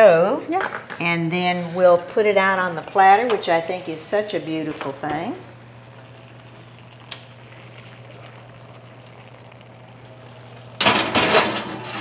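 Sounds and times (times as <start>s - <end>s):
squash sizzling in skillet: 4.7s - 11.8s
pan clattering and scraping: 10.8s - 12.0s.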